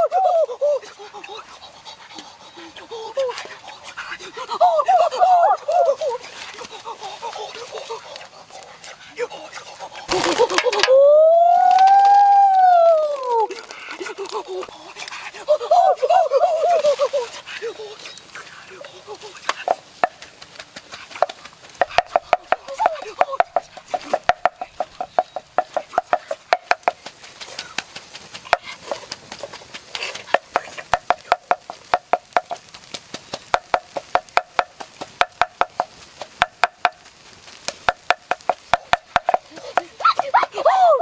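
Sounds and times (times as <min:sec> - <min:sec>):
wooden pestle pounding in mortar: 0:21.8 - 0:27.0, 0:33.4 - 0:37.0, 0:37.8 - 0:40.2.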